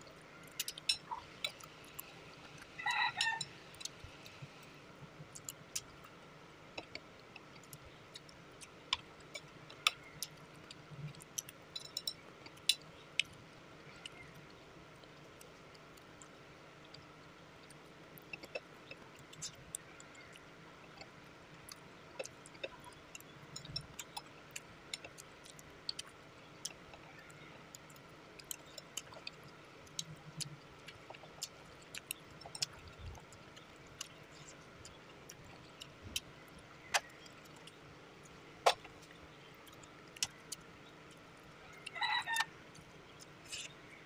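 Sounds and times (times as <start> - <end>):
quiet chewing: 0.0 - 44.0.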